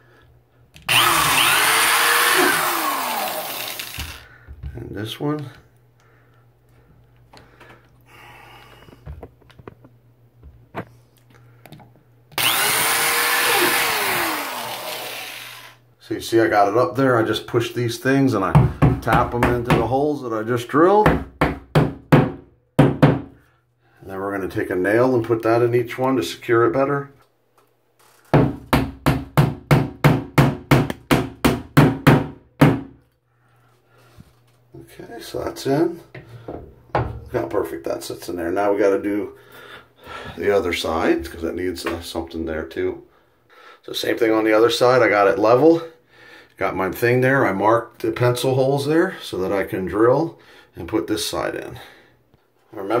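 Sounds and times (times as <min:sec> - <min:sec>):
power drill drilling drywall: 0:00.9 - 0:04.2, 0:12.4 - 0:15.8.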